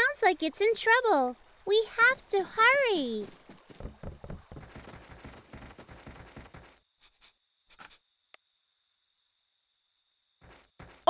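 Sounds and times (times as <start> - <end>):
high cricket trill: 0.0 - 11.0
quick running footsteps: 3.2 - 6.8, 10.4 - 11.0.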